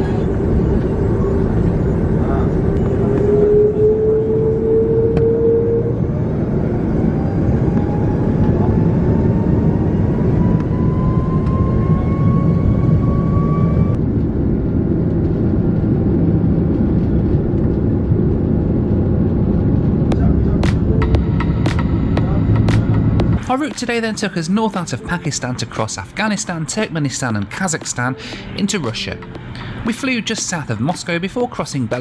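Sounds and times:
jet engine rumble in cabin: 0.0 - 23.4
rising engine whine: 0.0 - 31.5.

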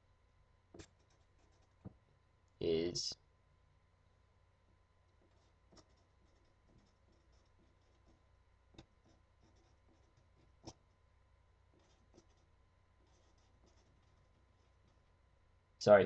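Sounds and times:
marker scratching while writing: 0.7 - 1.9, 5.2 - 11.0, 11.7 - 15.1.

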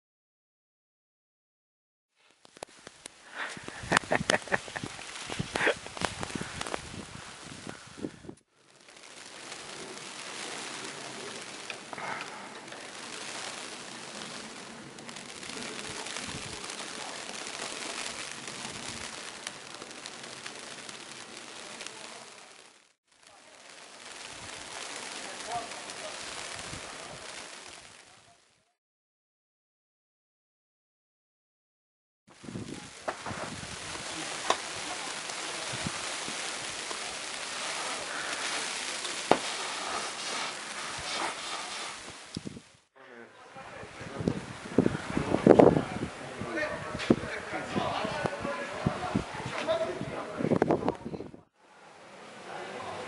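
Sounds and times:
faint crackles: 2.2 - 28.8, 32.3 - 42.9, 43.6 - 53.0
wind and driven snow hiss: 2.2 - 28.8, 32.3 - 42.9, 43.5 - 53.0.

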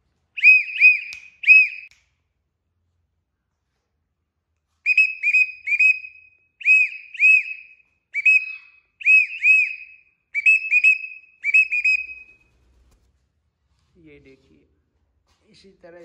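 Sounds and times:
person whistling short notes: 0.4 - 2.0, 4.8 - 12.4.

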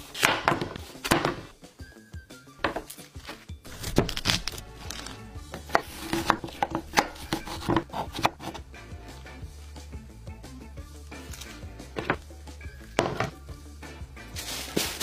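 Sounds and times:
background music: 0.0 - 15.0
knife chopping on wooden board: 0.1 - 1.5, 2.6 - 2.9, 3.7 - 4.5, 5.5 - 8.6, 12.0 - 12.2, 13.0 - 13.4.

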